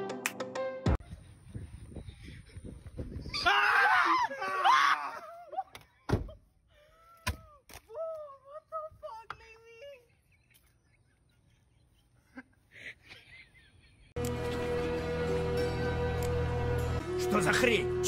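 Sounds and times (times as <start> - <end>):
music: 0.0 - 1.0, 14.2 - 18.0.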